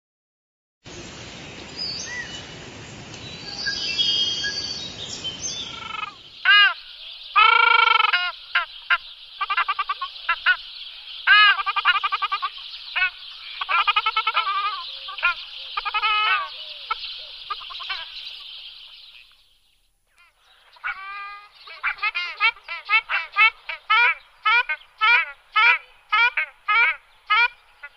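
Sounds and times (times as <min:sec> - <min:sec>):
ducks honking calls: 0:05.6 - 0:19.4, 0:20.2 - 0:27.9.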